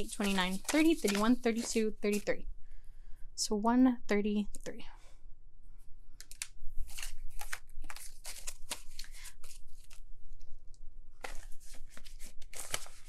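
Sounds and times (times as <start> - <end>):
banknotes crinkling against plastic: 0.0 - 2.4, 6.2 - 10.0, 11.2 - 13.0.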